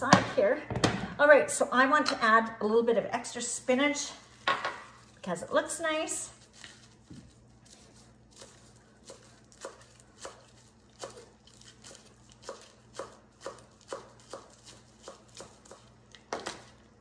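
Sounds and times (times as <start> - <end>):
knife chopping on cutting board: 8.4 - 16.6.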